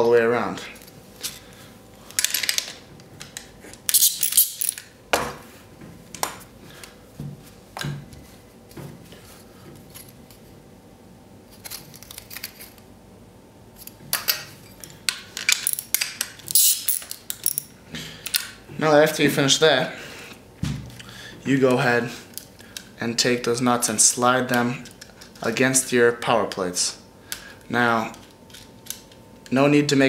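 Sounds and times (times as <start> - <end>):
metal tools clinking: 3.9 - 4.9, 14.2 - 17.7.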